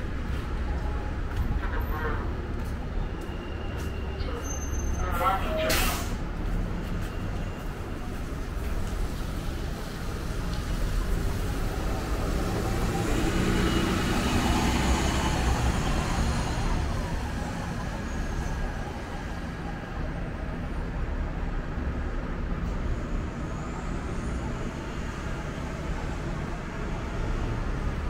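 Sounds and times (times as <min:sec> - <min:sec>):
bus engine driving off: 0:00.0 - 0:28.0
tyres on wet pavement: 0:05.4 - 0:20.7.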